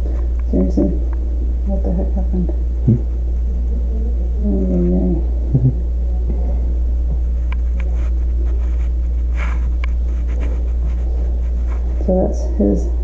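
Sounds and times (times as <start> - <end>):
steady low hum: 0.0 - 13.0
person humming: 2.9 - 3.1, 3.7 - 5.8.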